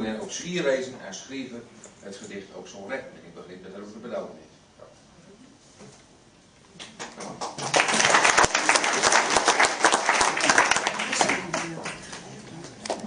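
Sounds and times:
audience applauding: 0:07.0 - 0:12.3.

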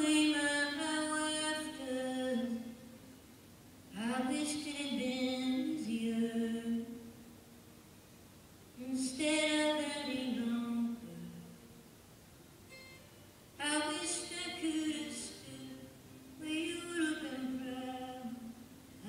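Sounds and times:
woman singing solo: 0:00.0 - 0:02.8, 0:03.9 - 0:07.1, 0:08.8 - 0:11.6, 0:13.6 - 0:18.6.

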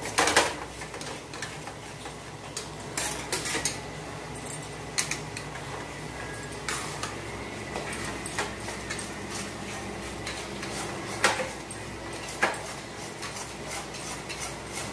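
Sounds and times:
metal spoon scraping a pan: 0:08.4 - 0:14.9.

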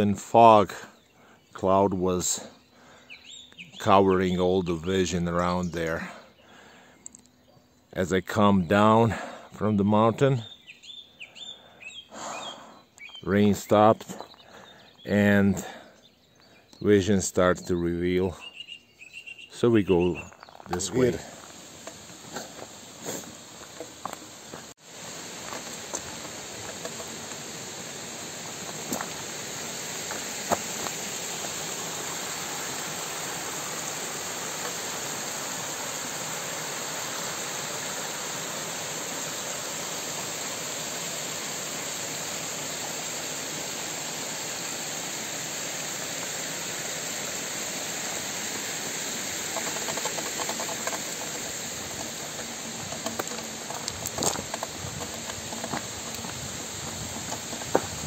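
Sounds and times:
waterfall rushing: 0:20.8 - 0:58.0.

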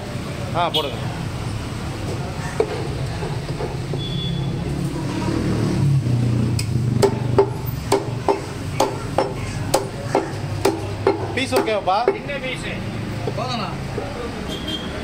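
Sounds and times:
low traffic rumble: 0:00.0 - 0:15.0
cleaver chopping meat: 0:06.9 - 0:12.3.

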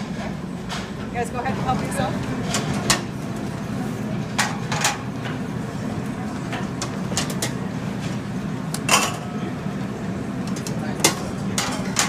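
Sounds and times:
utensils clinking on metal pans: 0:10.5 - 0:12.0.

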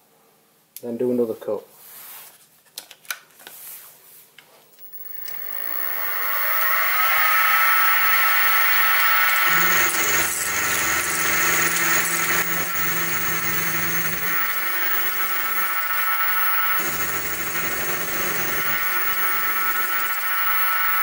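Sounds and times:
end mill cutting metal: 0:04.8 - 0:21.0
mill spindle motor whirring: 0:04.8 - 0:21.0
low hum: 0:04.9 - 0:20.7.

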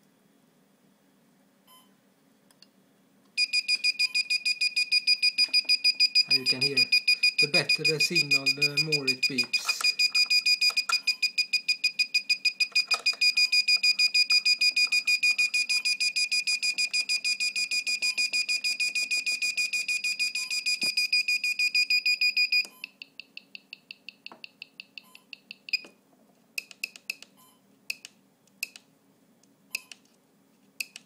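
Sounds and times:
rapid high-pitched beeps: 0:03.4 - 0:22.6.

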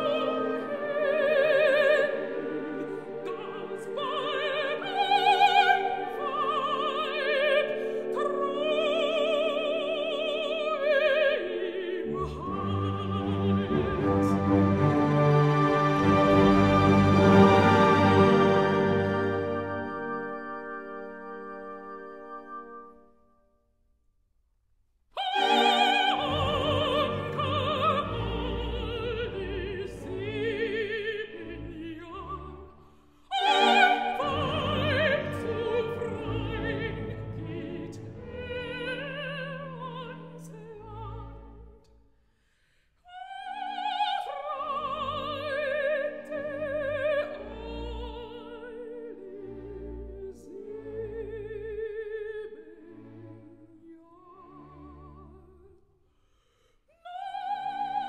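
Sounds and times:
soprano singing opera: 0:00.0 - 0:20.3, 0:25.2 - 0:41.7, 0:43.0 - 0:55.8, 0:56.9 - 0:58.0
orchestra playing: 0:11.8 - 0:23.1, 0:25.2 - 0:41.6.

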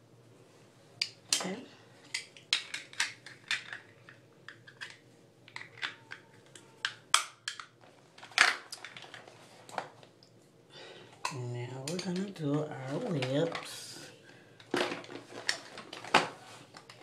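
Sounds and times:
small objects clicking and scraping: 0:02.0 - 0:09.3.

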